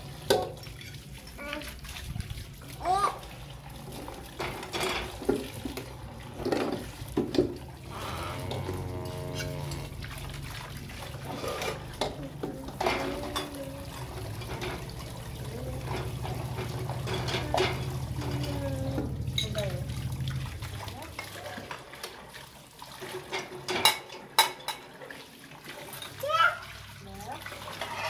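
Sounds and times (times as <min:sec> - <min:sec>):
running water splashing: 0:00.0 - 0:28.0
plates and utensils clinking: 0:04.4 - 0:07.6, 0:11.2 - 0:15.1, 0:15.8 - 0:19.6, 0:23.1 - 0:24.9.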